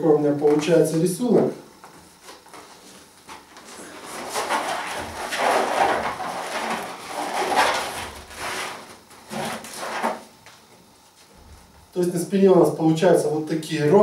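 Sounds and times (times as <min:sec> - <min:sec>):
balloons rubbing and squeaking: 0:03.7 - 0:10.2.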